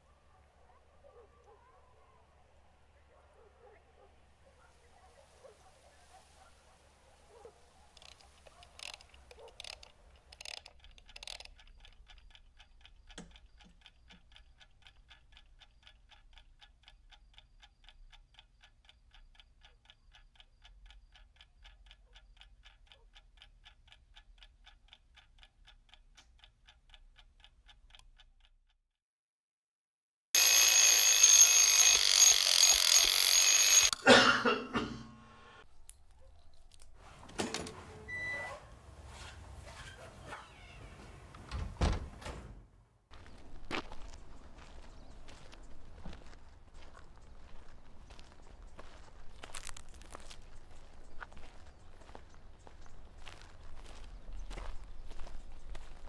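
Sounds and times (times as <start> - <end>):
clock ticking: 8.0 - 28.8
alarm clock ringing: 30.4 - 34.0.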